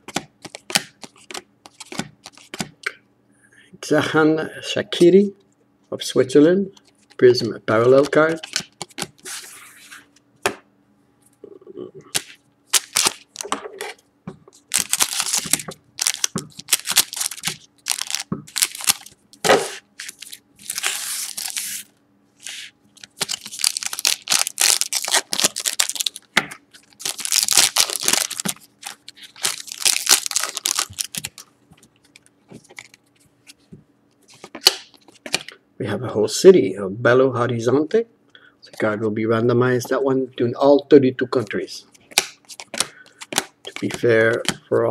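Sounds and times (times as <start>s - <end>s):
foil wrappers crinkling and tearing: 12.7s - 13.5s, 14.6s - 19.2s, 20.0s - 33.0s.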